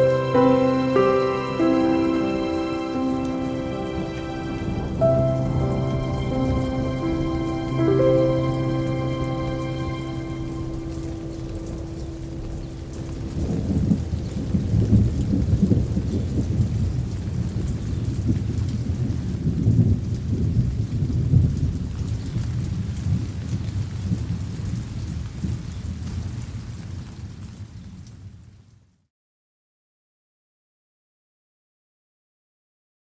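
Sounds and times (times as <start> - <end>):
rain falling: 0.0 - 29.0
rolling thunder: 1.7 - 26.4.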